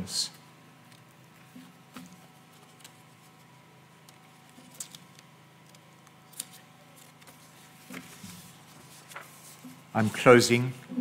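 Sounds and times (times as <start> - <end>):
faint steady hum: 0.0 - 11.0.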